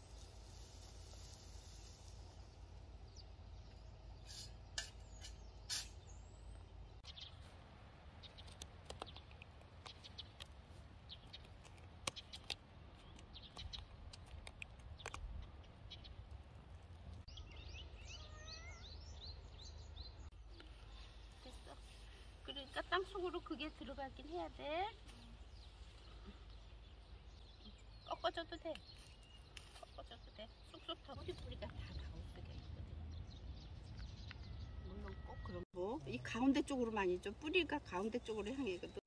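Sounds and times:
chirping calls: 0:17.2 - 0:20.3.

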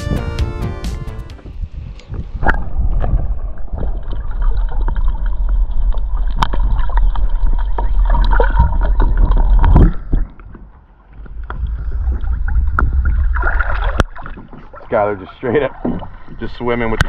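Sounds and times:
heavy low rumble: 0:00.0 - 0:07.6, 0:08.7 - 0:14.2
water rushing and splashing: 0:02.2 - 0:17.0.

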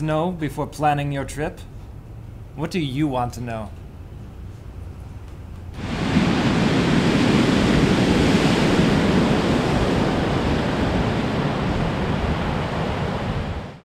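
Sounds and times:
ocean surf rushing: 0:05.8 - 0:13.8.

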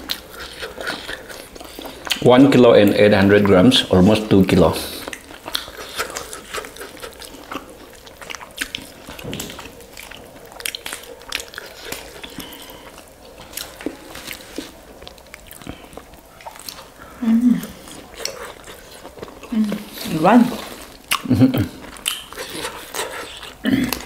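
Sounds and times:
biting and chewing: 0:00.0 - 0:24.0.

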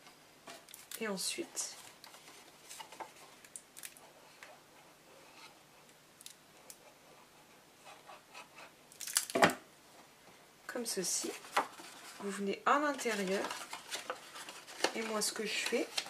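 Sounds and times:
cardboard box rustling: 0:11.2 - 0:16.0.

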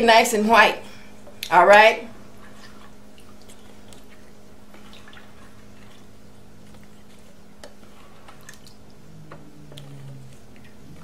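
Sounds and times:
steady low hum: 0:00.0 - 0:11.0
soft clicks and wet squishes: 0:02.4 - 0:11.0.

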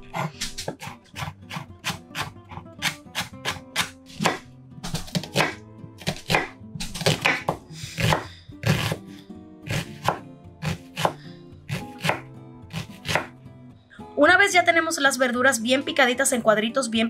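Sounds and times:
knife chopping on cutting board: 0:00.0 - 0:09.0, 0:09.7 - 0:13.3
background music: 0:00.0 - 0:17.0.

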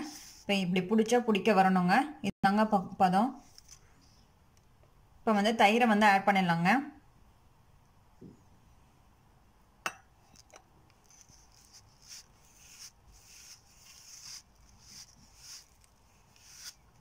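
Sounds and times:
fingers rubbing dough: 0:11.0 - 0:17.0.

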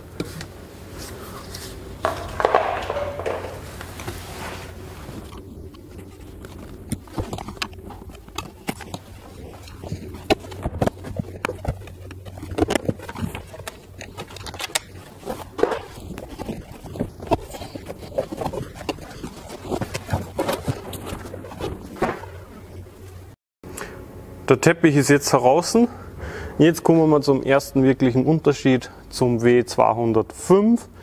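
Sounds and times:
car carpet rustling and scraping: 0:03.5 - 0:22.7.

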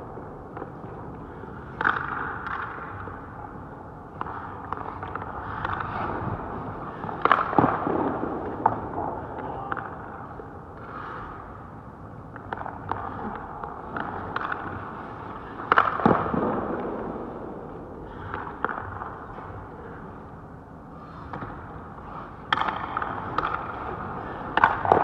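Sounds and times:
skates scraping ice: 0:00.5 - 0:11.7, 0:20.9 - 0:25.0.

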